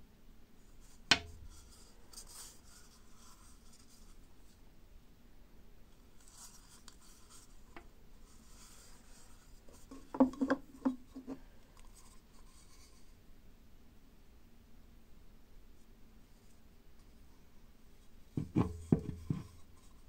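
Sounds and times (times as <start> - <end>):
hands rubbing wooden cups: 6.2 - 13.1, 18.4 - 20.0
hollow wooden knocks: 18.4 - 19.6.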